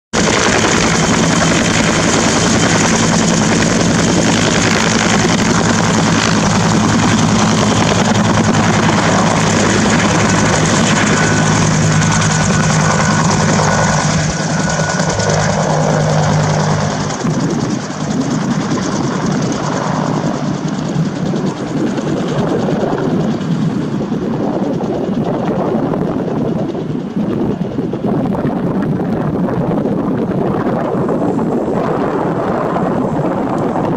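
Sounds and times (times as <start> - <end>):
helicopter rotor drone: 0.2 - 33.9.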